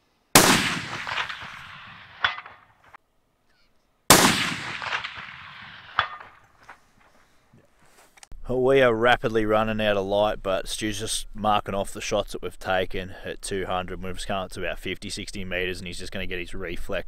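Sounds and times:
rifle shots with echo: 0:00.4 - 0:02.9, 0:04.1 - 0:06.4.

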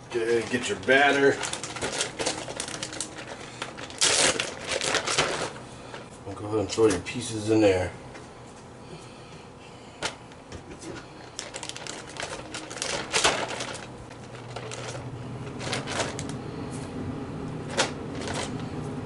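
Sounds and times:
plastic bag crinkling: 0:00.2 - 0:06.1, 0:11.2 - 0:16.4, 0:17.6 - 0:18.6.

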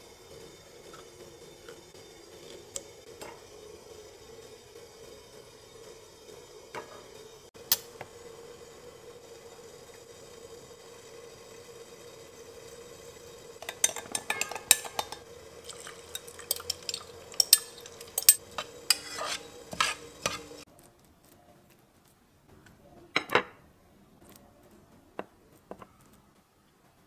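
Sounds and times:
milk pouring: 0:09.7 - 0:20.6
spoon clinking against glass: 0:13.6 - 0:20.5
short scrape: 0:18.6 - 0:20.6.

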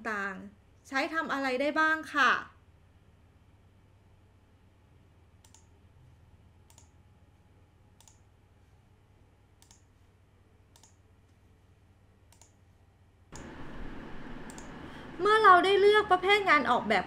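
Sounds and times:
computer mouse button clicks: 0:09.6 - 0:09.8.

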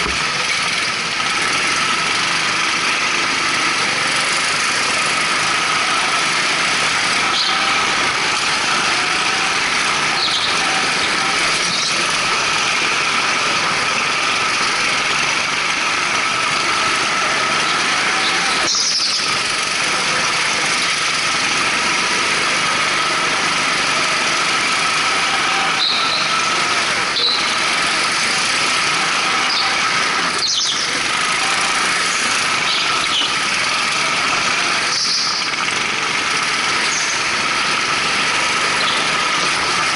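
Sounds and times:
go-kart engines droning: 0:00.0 - 0:39.9
tyre squeals: 0:03.9 - 0:15.1, 0:16.1 - 0:35.6.

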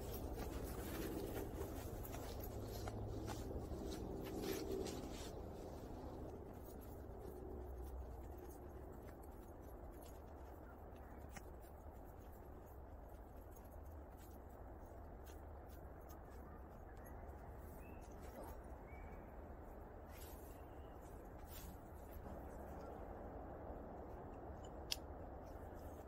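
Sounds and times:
footsteps crunching in snow: 0:00.0 - 0:16.8
small crackles: 0:00.0 - 0:19.1.

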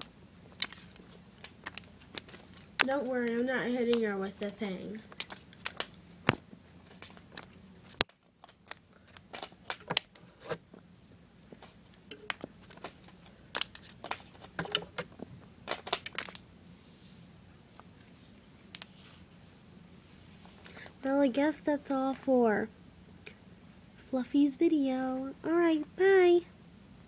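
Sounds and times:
small objects clicking and tapping: 0:00.0 - 0:10.6, 0:11.5 - 0:16.4.

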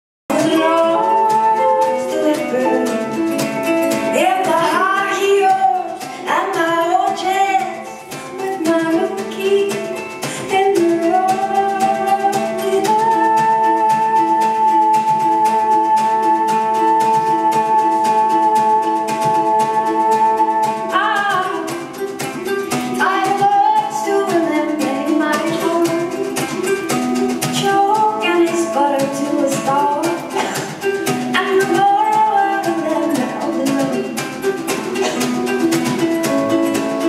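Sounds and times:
woman singing: 0:00.3 - 0:36.0
ukulele strumming: 0:00.3 - 0:37.0.

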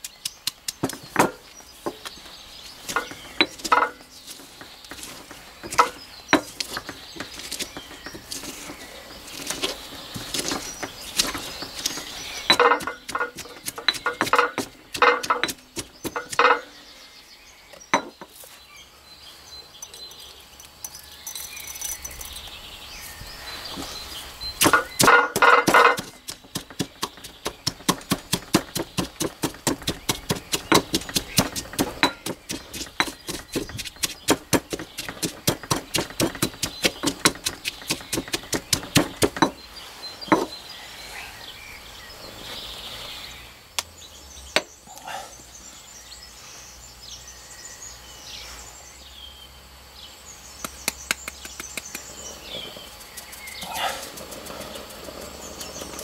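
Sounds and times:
birds chirping faintly: 0:00.0 - 0:56.0
pestle pounding in stone mortar: 0:05.6 - 0:08.3, 0:10.2 - 0:16.7, 0:24.6 - 0:39.6.

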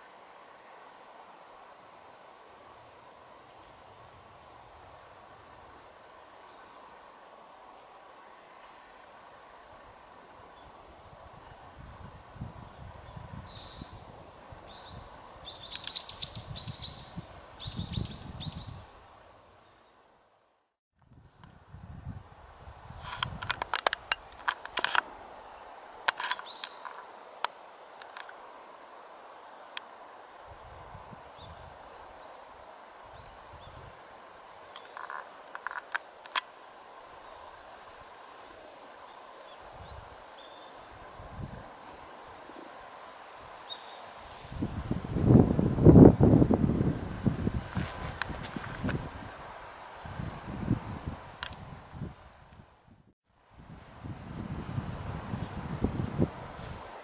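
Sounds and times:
steady outdoor hiss: 0:00.0 - 0:57.0
small bird chirping: 0:14.7 - 0:18.8.

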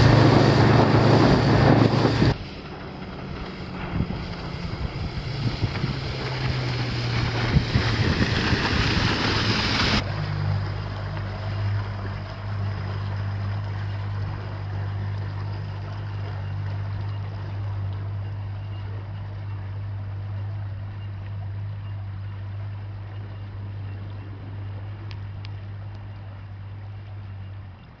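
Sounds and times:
outboard motor droning: 0:00.0 - 0:28.0.

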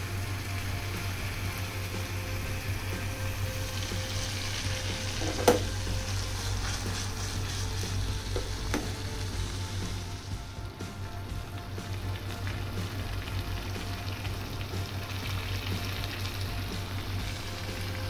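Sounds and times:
gravy sizzling in a pan: 0:00.0 - 0:18.0.

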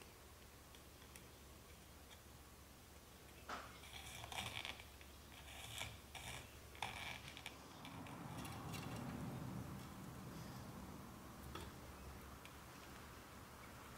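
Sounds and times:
wire scraping through fingers: 0:03.7 - 0:09.2.

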